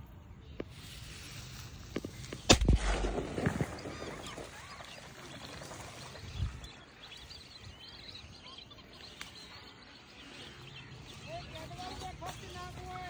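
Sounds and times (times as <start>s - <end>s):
faint bird chirps: 3.4s - 13.0s.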